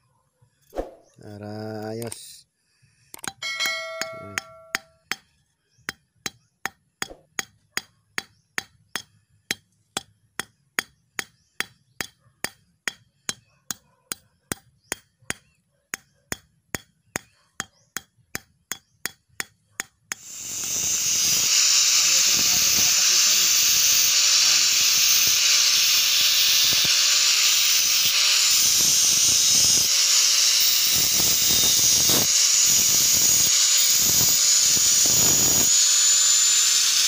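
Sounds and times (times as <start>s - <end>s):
hammer tapping metal: 3.2s - 5.3s, 5.9s - 20.3s
angle grinder starting: 20.1s - 37.0s.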